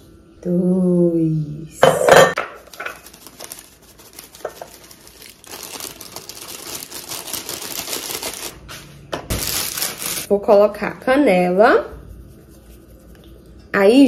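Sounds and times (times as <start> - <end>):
dry oats rustling and crackling: 2.6 - 8.6, 9.3 - 10.3.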